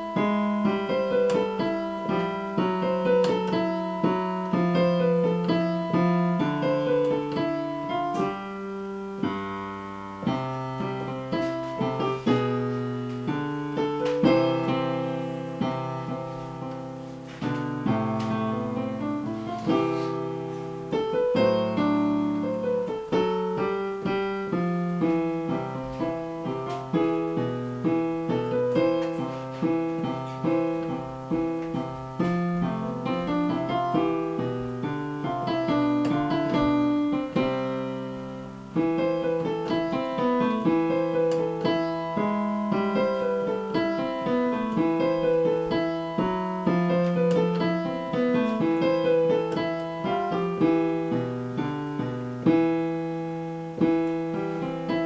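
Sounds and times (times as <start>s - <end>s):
digital piano melody: 0.0s - 55.0s.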